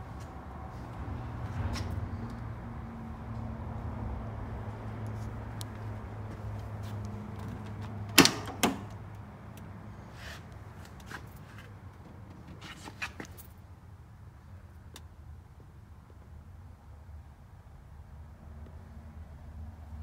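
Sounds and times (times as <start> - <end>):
car door handle and latch clacks: 8.1 - 9.0.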